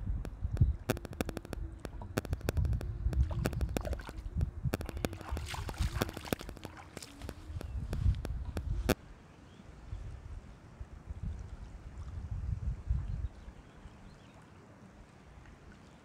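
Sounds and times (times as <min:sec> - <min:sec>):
sharp clicks: 0:00.2 - 0:09.0.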